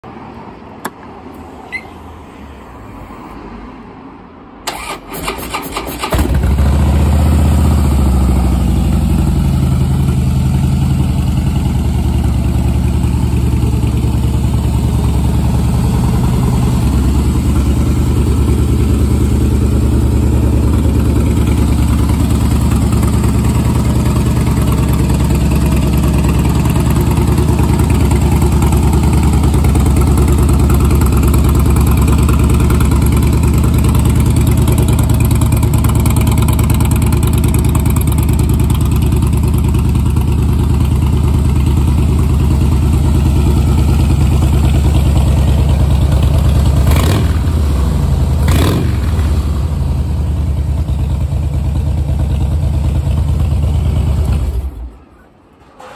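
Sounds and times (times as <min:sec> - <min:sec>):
motorcycle engine idling: 0:06.0 - 0:54.8.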